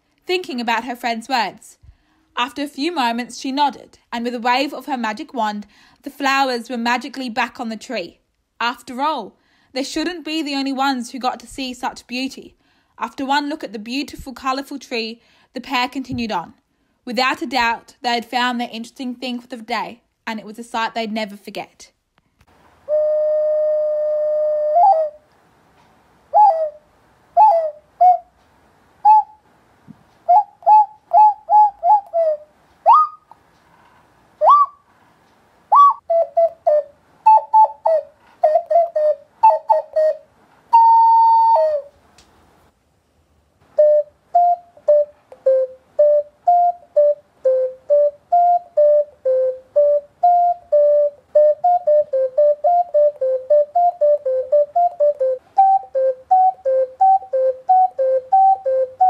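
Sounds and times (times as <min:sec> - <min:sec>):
person whistling bird calls: 0:22.9 - 0:25.2, 0:26.4 - 0:26.8, 0:27.4 - 0:28.3, 0:29.1 - 0:29.4, 0:30.3 - 0:33.3, 0:34.4 - 0:34.8, 0:35.7 - 0:41.9, 0:43.8 - 0:59.0.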